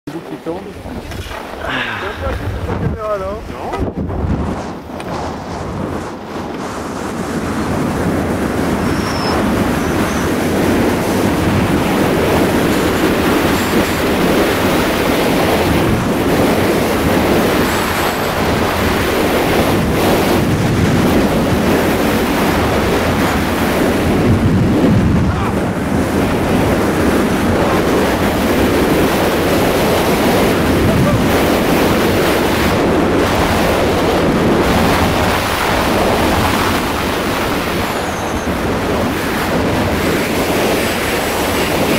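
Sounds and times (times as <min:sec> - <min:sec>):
wind rushing over microphone: 0:00.1 - 0:41.9
skis scraping on snow: 0:04.3 - 0:07.8.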